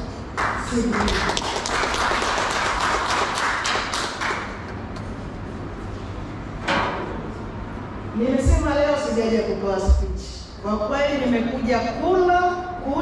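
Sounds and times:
audience clapping: 0.0 - 4.9.

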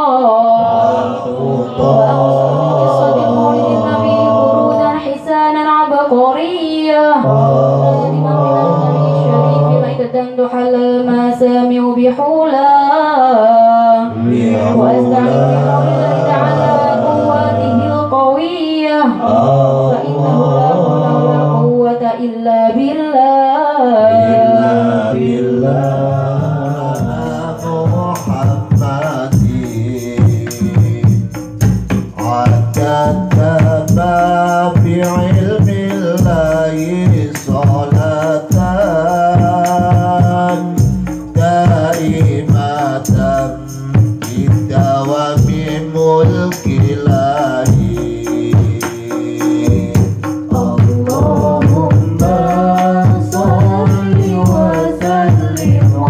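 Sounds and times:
devotional singing: 0.0 - 56.0
frame drums: 24.2 - 56.0
hand drum: 24.2 - 56.0.

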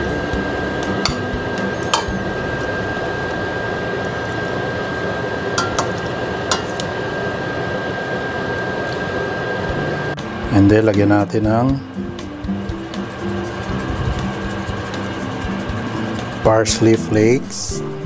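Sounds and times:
steady hiss: 11.9 - 18.0.

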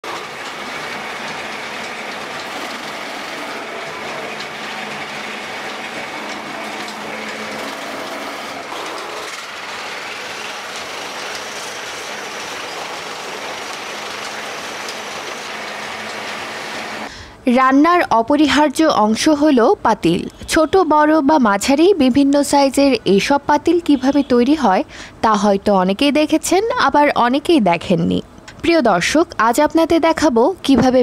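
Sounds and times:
lathes rattling and clattering: 0.0 - 16.9.

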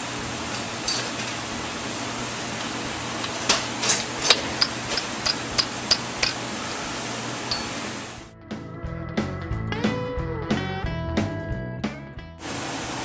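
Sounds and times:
steady shop hiss: 0.0 - 8.3, 12.4 - 13.0.

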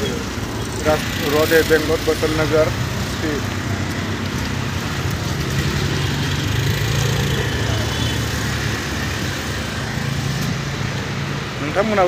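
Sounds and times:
traffic engine hum: 0.0 - 12.0.

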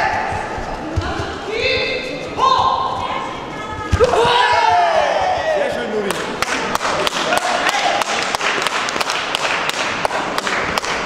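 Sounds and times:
murmur of crowd voices: 0.0 - 9.0
spectators clapping: 6.0 - 11.0.

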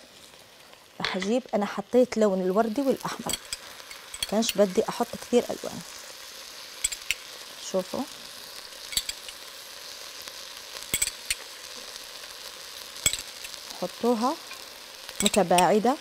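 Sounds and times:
rice pot sizzling: 0.0 - 16.0
metal spoon clicking on pot: 8.9 - 9.4, 11.0 - 11.4, 13.1 - 13.6.

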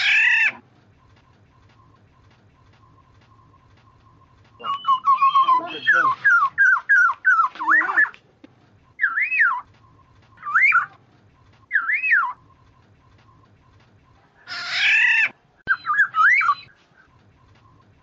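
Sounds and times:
oriole fluty whistled calls: 1.6 - 8.2, 9.0 - 13.8, 14.5 - 18.0
bird nasal squawk: 14.4 - 16.7.

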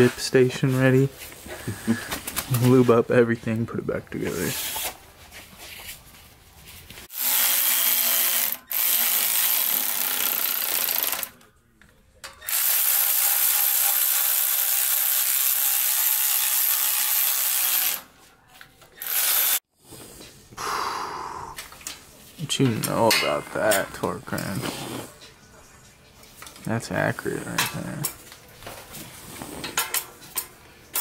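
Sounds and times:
cordless ratchet running: 7.1 - 11.3, 12.4 - 18.0, 19.0 - 19.6.

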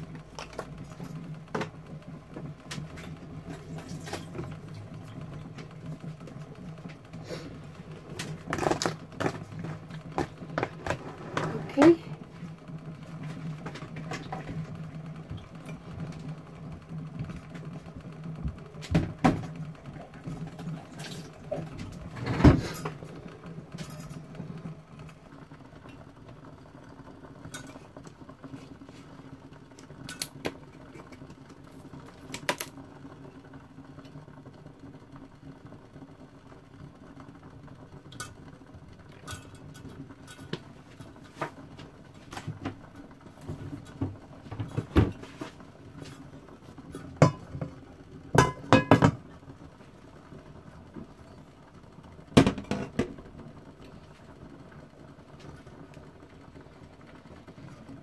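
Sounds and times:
low steady hum: 0.0 - 58.0
kitchen knocks and clicks: 48.4 - 49.2.

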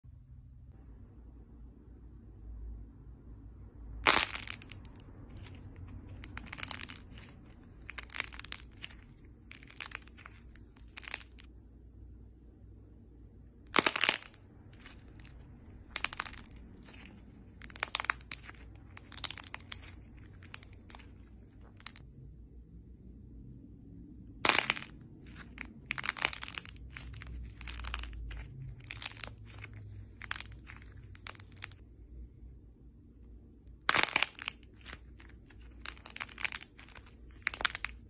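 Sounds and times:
crust cracking: 4.0 - 11.5, 13.6 - 22.1, 24.3 - 31.8, 33.7 - 38.0
crust crunching and crumbling: 4.0 - 11.5, 13.6 - 22.1, 24.3 - 31.8, 33.7 - 38.0.

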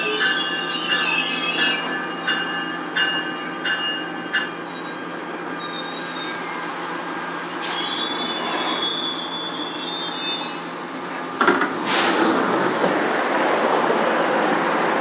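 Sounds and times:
train wheels squealing: 0.0 - 6.8, 7.6 - 11.3
train running noise with low hum: 10.4 - 15.0.

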